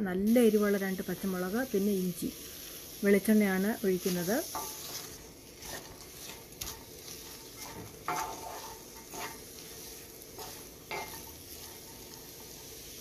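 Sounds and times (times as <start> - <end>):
steady sizzle: 0.0 - 13.0
wooden spatula scraping a pan: 3.9 - 13.0.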